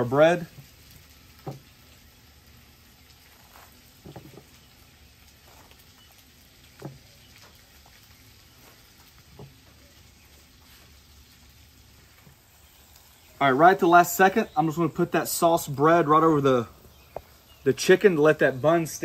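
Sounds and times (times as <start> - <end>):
faint sizzle: 0.0 - 19.0
spatula scraping on toast: 3.2 - 4.5, 5.4 - 5.9.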